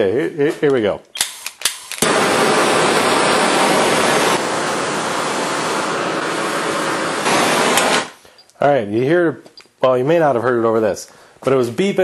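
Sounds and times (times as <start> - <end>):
torch flame hissing: 1.7 - 8.2.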